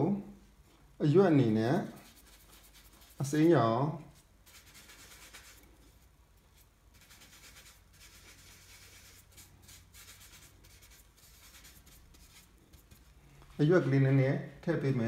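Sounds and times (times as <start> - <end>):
paintbrush scrubbing on palette: 1.8 - 13.2.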